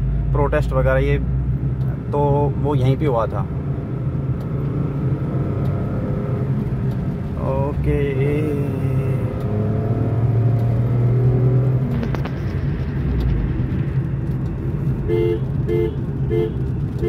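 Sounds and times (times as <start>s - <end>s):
car engine and road hum: 0.0s - 17.0s
car horn honks: 15.0s - 16.7s.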